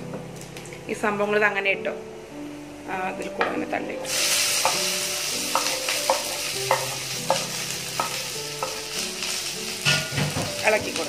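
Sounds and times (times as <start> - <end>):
vegetables sizzling in hot oil: 4.0 - 11.0
ladle knocking and scraping pan: 9.8 - 10.6.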